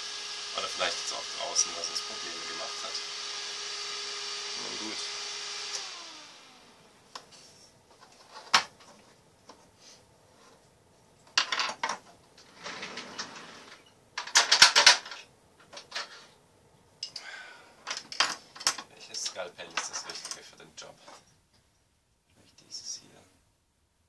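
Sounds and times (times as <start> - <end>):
high-speed fan whining: 0.0 - 7.2
fan casing clattering on wooden bench: 11.3 - 12.1, 14.2 - 16.2.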